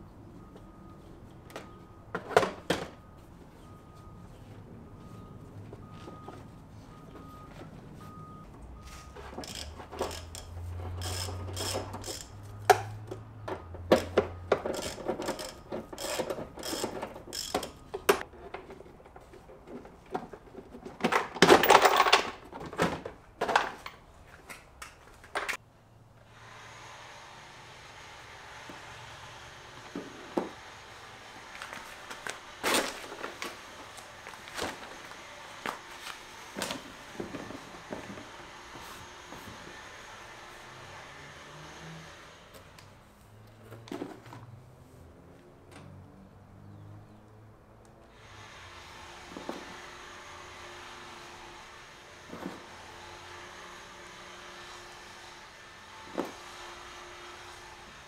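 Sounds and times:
hand tools clicking and rattling: 9.1 - 25.6.

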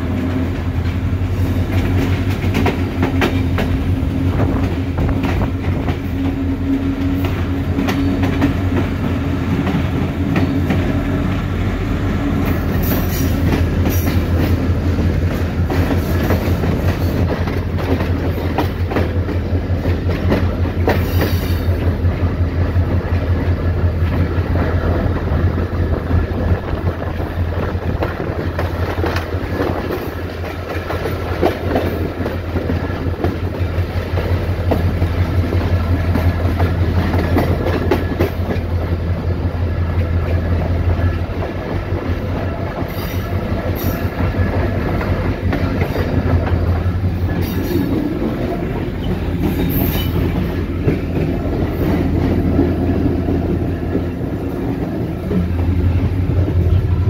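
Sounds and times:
diesel locomotive engine droning: 0.0 - 57.0
train wheels rolling over track: 0.0 - 57.0.

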